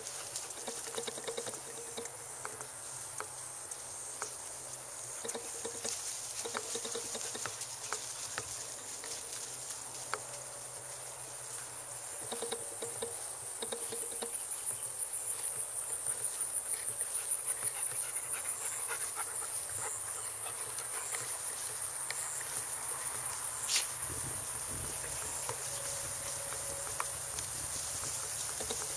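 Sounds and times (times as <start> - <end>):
faint ticks and rustles: 0.0 - 28.9
insects trilling: 0.0 - 28.9.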